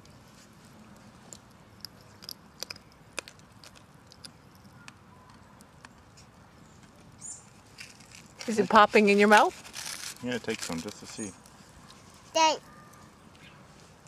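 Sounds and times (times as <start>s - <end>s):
popping candy crackling in mouth: 1.3s - 6.2s, 9.6s - 11.5s.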